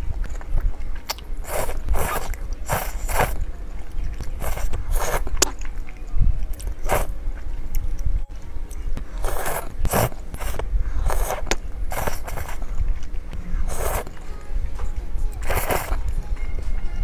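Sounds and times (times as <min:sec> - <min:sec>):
chewing: 0:00.0 - 0:16.9
noodle slurping: 0:01.0 - 0:05.8, 0:06.6 - 0:07.4, 0:09.1 - 0:14.2, 0:15.4 - 0:16.1.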